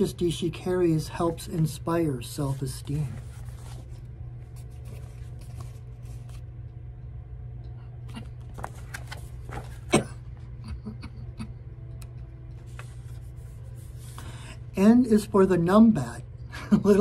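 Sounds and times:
steady low hum: 0.0s - 17.0s
paper rustling: 1.2s - 6.5s, 8.2s - 10.0s, 12.6s - 14.3s.

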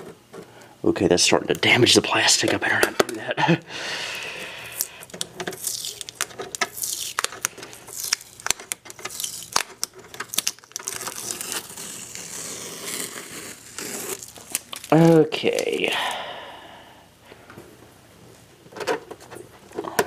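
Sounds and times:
tape peeling: 4.1s - 15.8s
fingernails scratching plastic: 5.0s - 14.3s.

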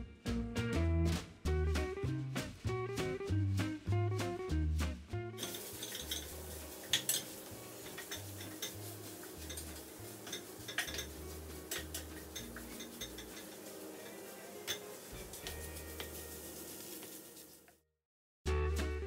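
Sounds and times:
soft background music: 0.0s - 17.4s
wooden spatula scraping frying pan: 5.4s - 17.7s.

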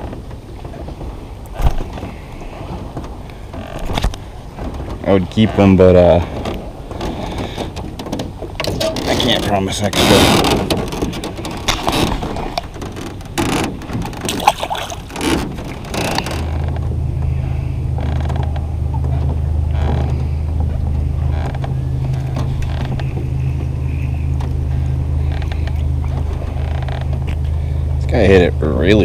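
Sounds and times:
knocks and clatter in metal boat: 0.0s - 29.0s
electric trolling motor humming: 9.8s - 29.0s.

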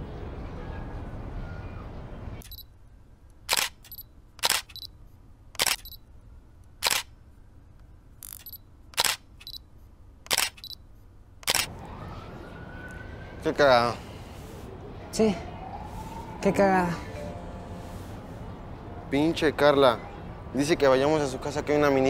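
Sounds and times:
city hum: 0.0s - 22.0s
camera shutter double clicks: 3.5s - 4.9s, 5.6s - 6.0s, 6.8s - 7.1s, 8.2s - 9.6s, 10.3s - 10.8s, 11.4s - 11.7s.

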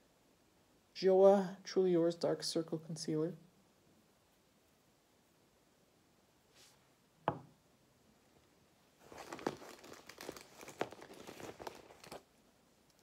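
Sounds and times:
hands rummaging through a pouch: 9.0s - 12.3s.

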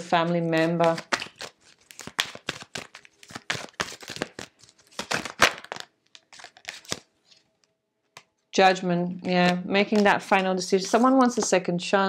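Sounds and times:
cards being shuffled: 0.2s - 7.5s, 9.2s - 11.5s.

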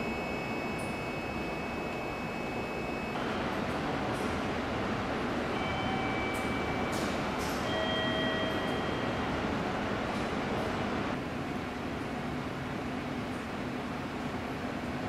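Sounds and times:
train equipment running: 0.0s - 11.2s.

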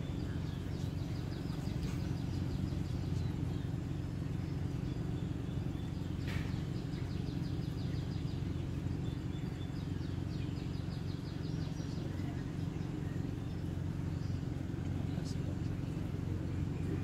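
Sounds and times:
birds chirping: 0.0s - 17.0s
low rumble: 0.0s - 17.0s.

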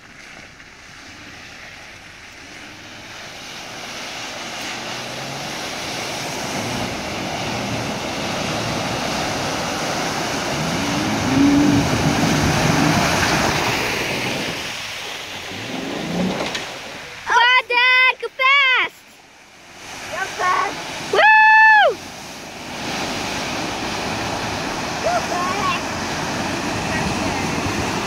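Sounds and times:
water rushing and sloshing: 0.0s - 28.0s
engine revving: 2.5s - 17.0s.

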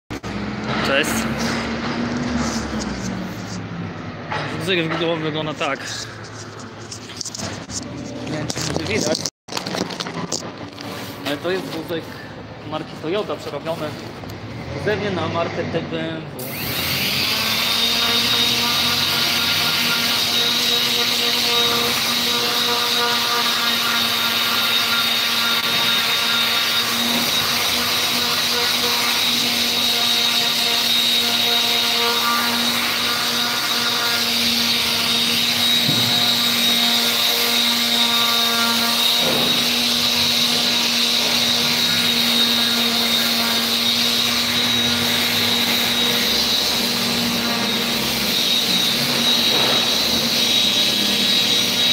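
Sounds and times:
machine hissing and whining: 39.0s - 51.9s.

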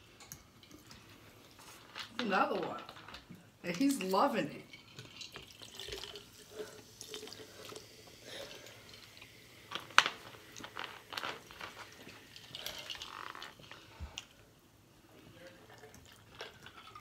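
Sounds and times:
ice clinking against glass: 4.7s - 6.2s
person gulping and slurping: 4.8s - 14.4s, 15.4s - 17.0s.

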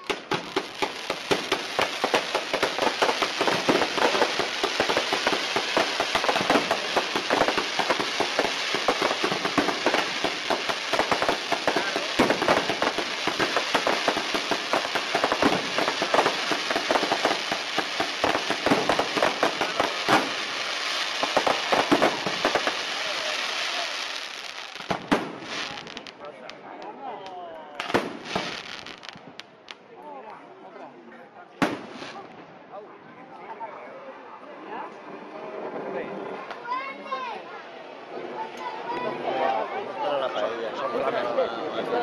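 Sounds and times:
loud firework bang: 0.0s - 20.4s, 24.9s - 25.8s, 27.8s - 28.7s, 31.6s - 32.3s
fireworks crackling and popping: 0.0s - 29.9s, 31.6s - 32.5s.

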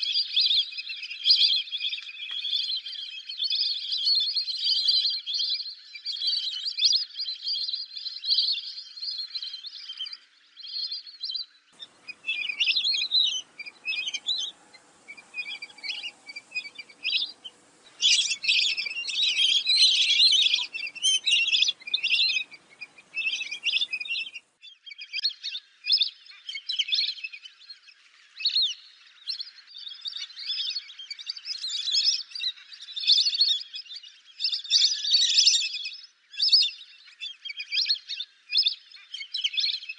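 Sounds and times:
ducks whistling chirps: 11.8s - 24.4s
faint low hum: 11.8s - 24.4s.

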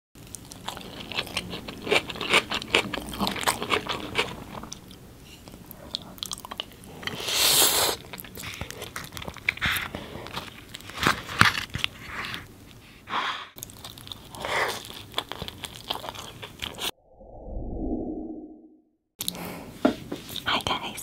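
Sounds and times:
person chewing food: 0.2s - 12.8s, 13.6s - 16.9s.

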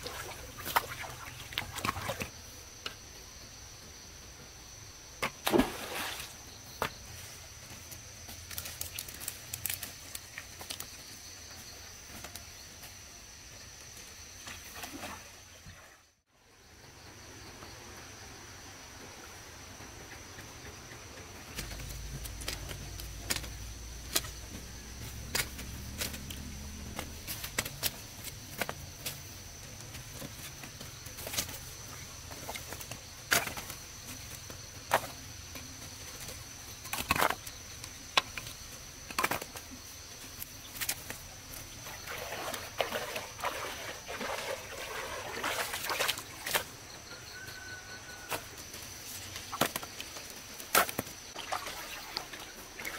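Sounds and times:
high insect drone: 16.4s - 52.9s.

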